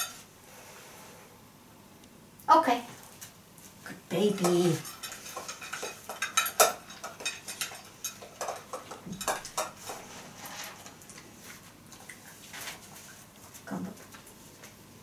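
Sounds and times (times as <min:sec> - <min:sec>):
metal bowl clinking and scraping: 0:04.2 - 0:12.9.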